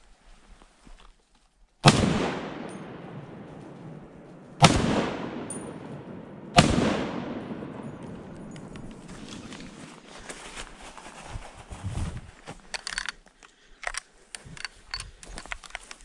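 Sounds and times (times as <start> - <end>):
rifle shots echoing: 1.8 - 9.8.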